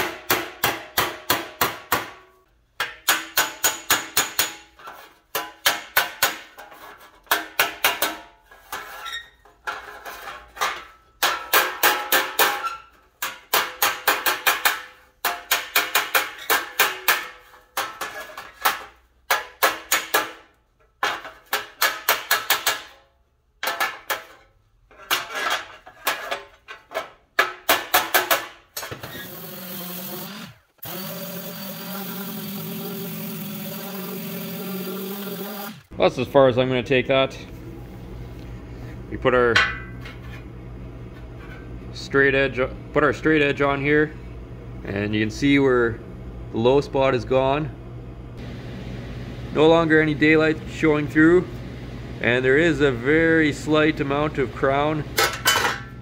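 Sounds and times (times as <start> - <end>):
hammer striking metal panel: 0.0 - 6.6, 7.2 - 8.3, 11.2 - 12.6, 13.2 - 23.0, 27.4 - 28.6
orbital sander running: 29.2 - 35.9.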